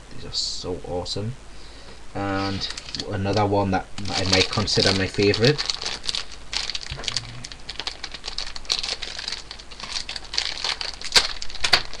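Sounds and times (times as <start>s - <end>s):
toy packaging crinkling: 2.4s - 12.0s.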